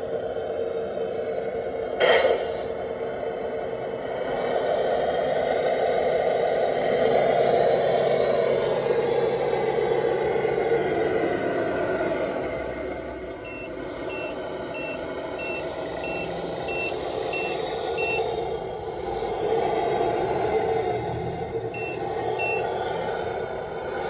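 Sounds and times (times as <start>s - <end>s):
reversing beeper beeps: 13.4s - 18.4s, 21.8s - 22.8s.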